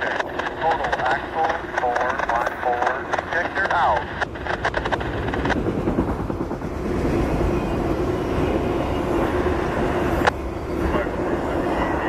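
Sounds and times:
rapid clicks: 0:00.0 - 0:06.8
freight train wheels rumbling on rails: 0:00.0 - 0:12.0.

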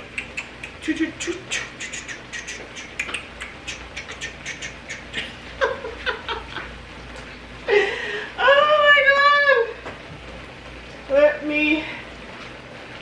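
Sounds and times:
vegetables frying in oil: 0:05.4 - 0:13.0.

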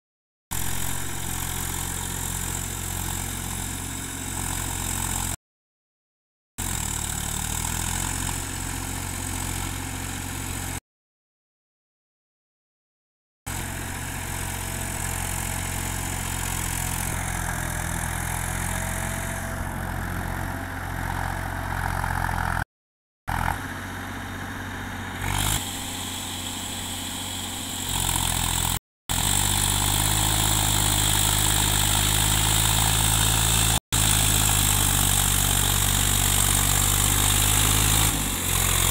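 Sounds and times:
tractor diesel engine running: 0:00.6 - 0:05.4, 0:06.6 - 0:10.8, 0:13.5 - 0:22.6, 0:23.3 - 0:38.9
rotavator churning wet field: 0:24.9 - 0:38.9.

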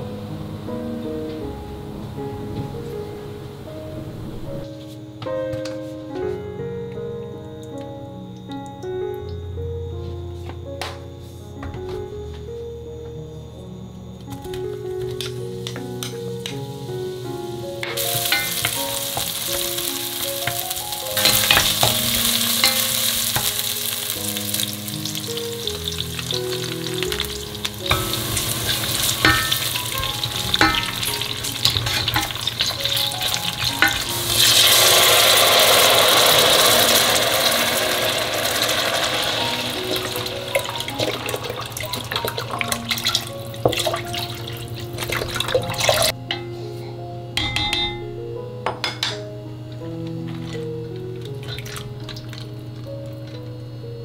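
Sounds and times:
soft background music: 0:00.0 - 0:54.0
food sizzling in hot oil: 0:15.2 - 0:46.2.

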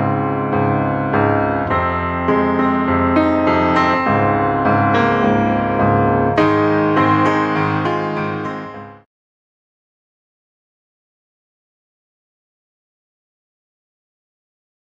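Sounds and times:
gentle piano melody: 0:00.0 - 0:09.1.

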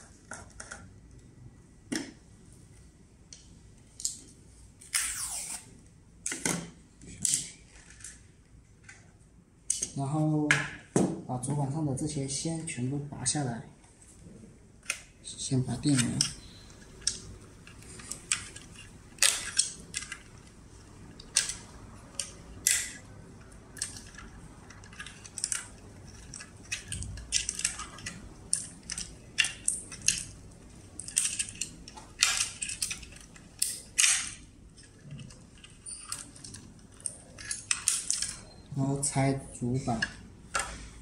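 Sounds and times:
wires rustling and rattling: 0:15.2 - 0:41.0.

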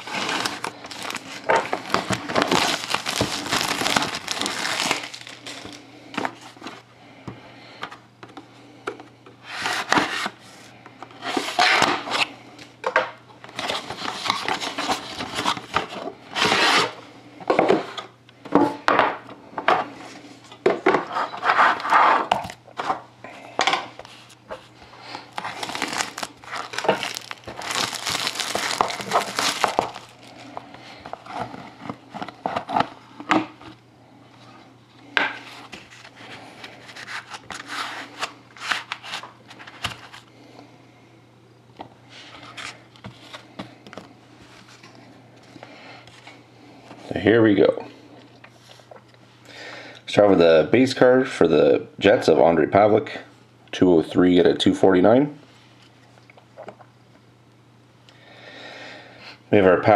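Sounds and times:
plastic wrapping tearing and crinkling: 0:00.0 - 0:05.8, 0:25.1 - 0:30.5.

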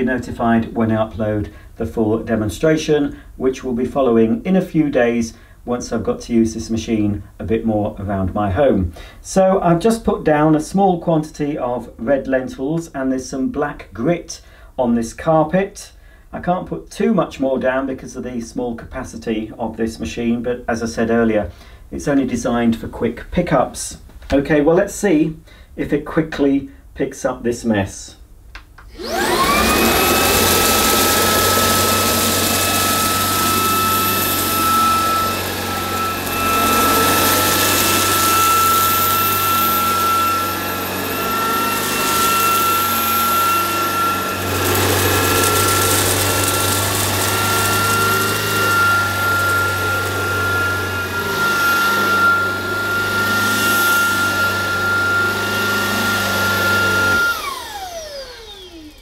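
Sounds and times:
stick vacuum motor whine: 0:28.8 - 0:59.0
vacuum picking up grit: 0:28.9 - 0:59.0.

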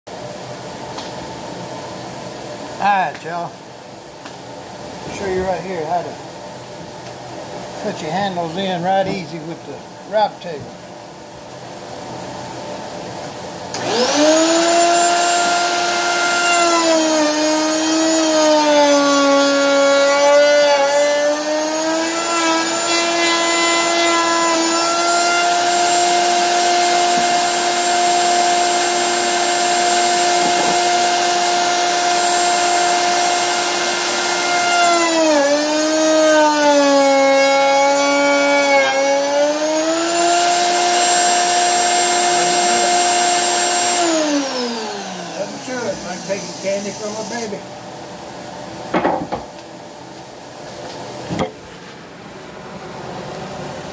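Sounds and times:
router whining: 0:13.7 - 0:47.6.

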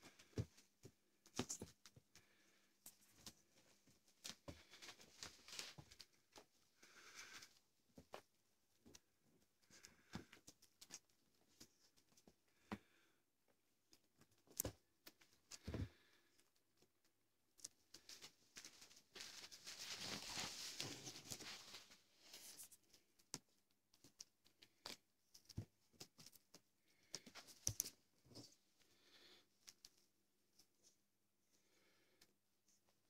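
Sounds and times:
rustling: 0:00.0 - 0:12.4, 0:17.6 - 0:23.4
cats' paws tapping and thumping: 0:00.0 - 0:13.0, 0:13.8 - 0:21.8, 0:22.8 - 0:30.0.

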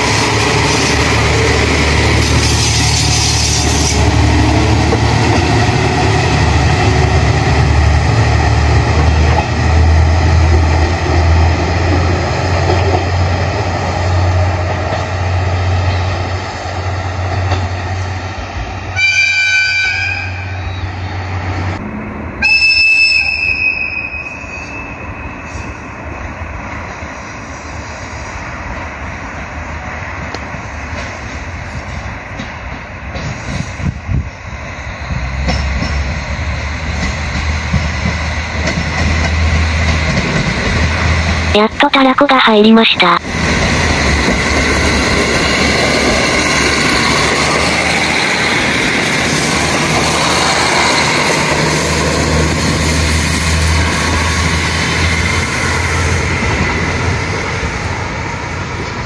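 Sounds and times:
train engine humming: 0:00.0 - 0:59.0
train horn blasts: 0:19.0 - 0:20.6.

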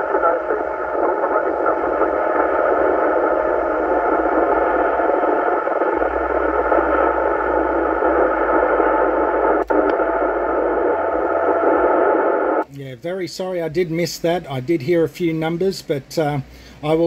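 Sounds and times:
radio click: 0:00.0 - 0:12.7
radio static hiss: 0:00.0 - 0:17.0.

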